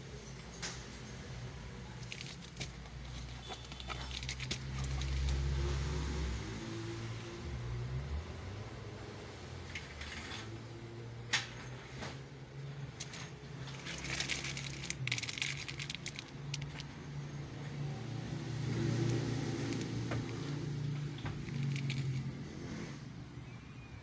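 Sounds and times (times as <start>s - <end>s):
plastic packaging crinkling: 1.9s - 5.4s, 13.0s - 16.9s, 21.3s - 22.3s
sharp clicks and crackles: 2.0s - 5.5s, 13.0s - 17.0s, 18.8s - 22.3s.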